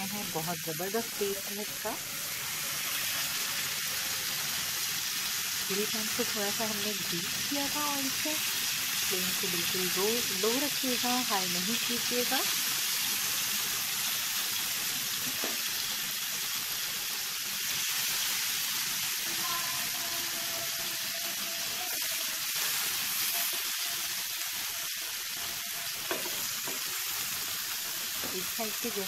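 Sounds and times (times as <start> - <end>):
chicken sizzling on a grill pan: 0.0 - 29.0
faint knocks in a pan: 26.1 - 26.8.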